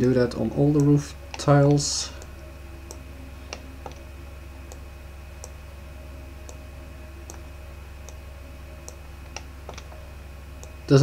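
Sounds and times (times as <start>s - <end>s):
steady low hum: 0.0s - 11.0s
computer mouse clicking: 2.9s - 4.1s, 8.8s - 9.9s.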